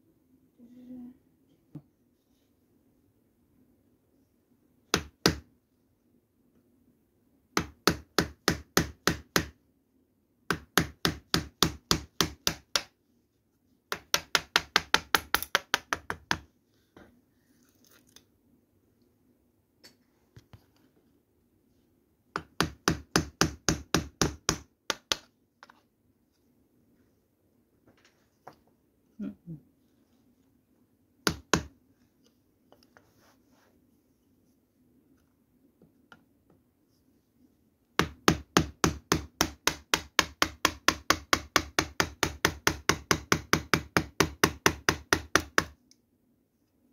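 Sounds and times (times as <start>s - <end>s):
chisel struck into wood: 4.9s - 5.4s, 7.6s - 9.6s, 10.5s - 12.9s, 13.9s - 16.4s, 22.4s - 25.3s, 31.2s - 31.7s, 38.0s - 45.8s.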